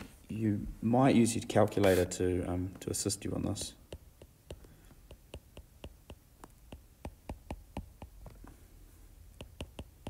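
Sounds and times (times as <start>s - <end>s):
stylus clicking on tablet screen: 3.5s - 8.4s, 9.3s - 10.0s.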